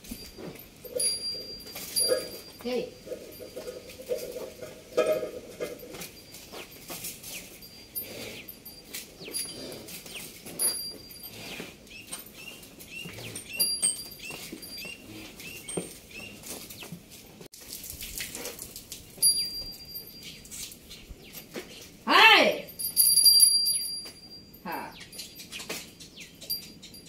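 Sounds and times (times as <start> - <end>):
hooves tapping on concrete: 0.0 - 22.0, 22.7 - 27.0
birds chirping: 6.2 - 17.0, 19.1 - 22.1, 23.6 - 27.0.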